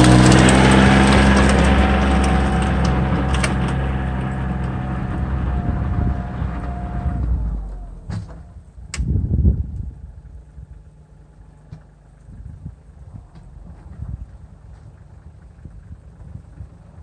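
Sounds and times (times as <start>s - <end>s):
tractor diesel engine driving past: 0.0s - 8.8s.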